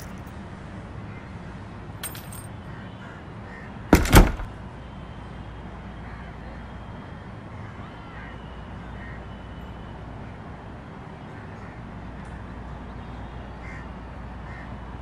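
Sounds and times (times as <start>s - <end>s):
keys jingling: 0.0s - 0.3s, 2.0s - 2.5s, 4.0s - 4.5s
wooden door thudding shut: 4.0s - 4.5s.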